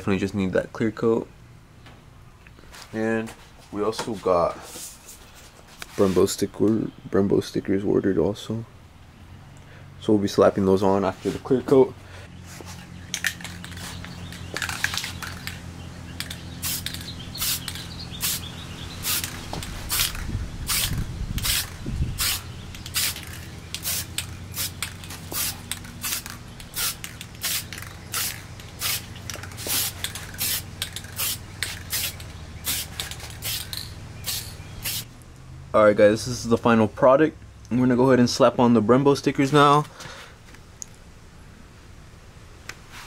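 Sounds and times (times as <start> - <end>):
steady low hum: 8.1 - 39.3
aerosol can spraying: 16.2 - 35.1.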